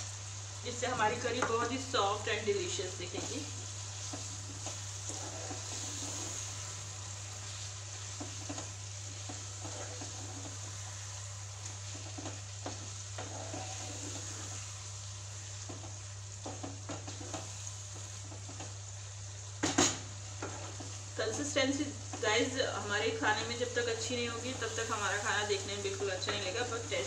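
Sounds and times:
chicken sizzling in a frying pan: 0.0 - 27.0
wooden spatula stirring and scraping: 0.8 - 19.0, 20.1 - 22.6, 23.2 - 27.0.

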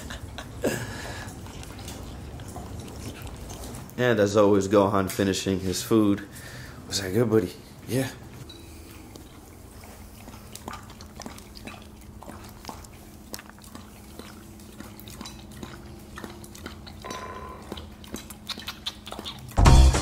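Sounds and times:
dog licking and chewing: 0.0 - 6.0, 6.9 - 20.0
steady low hum: 5.4 - 20.0.

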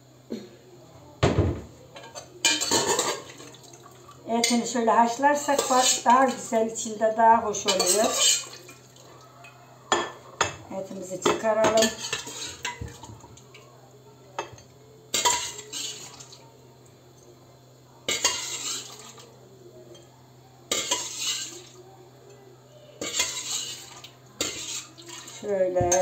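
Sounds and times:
metal spoon scraping in pot: 4.4 - 6.5, 7.6 - 8.6, 11.7 - 12.8, 15.2 - 16.1, 18.1 - 19.1, 20.7 - 21.7, 23.0 - 26.0.

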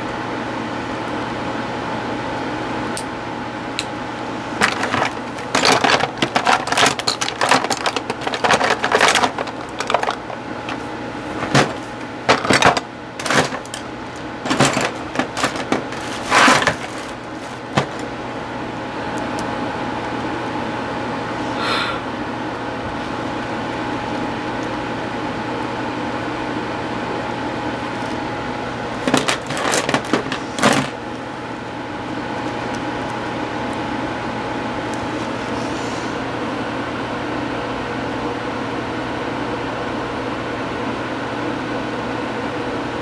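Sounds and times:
steady hum: 0.0 - 40.1
rustling and rummaging near microphone: 4.6 - 18.1, 29.0 - 31.0.

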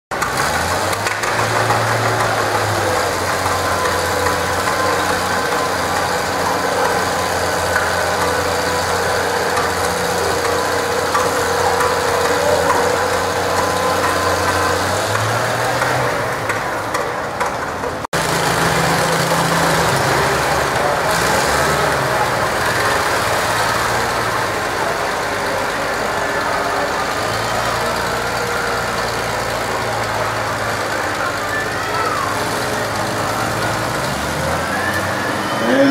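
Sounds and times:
tractor engine running under load: 0.1 - 35.9.

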